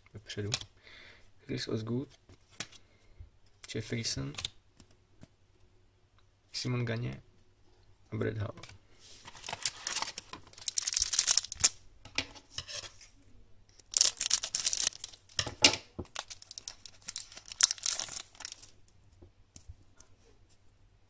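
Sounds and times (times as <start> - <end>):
card pack wrapper crinkling: 9.2 - 11.8, 13.8 - 18.8.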